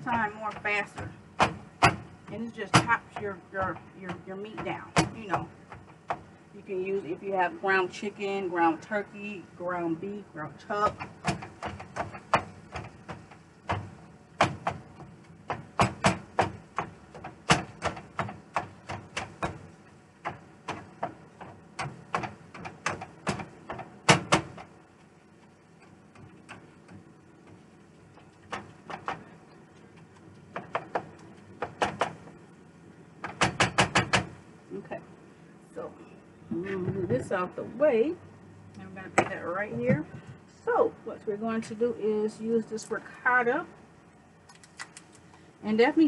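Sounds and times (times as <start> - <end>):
meat chopper knocking on skillet: 10.9 - 24.7, 30.5 - 32.3.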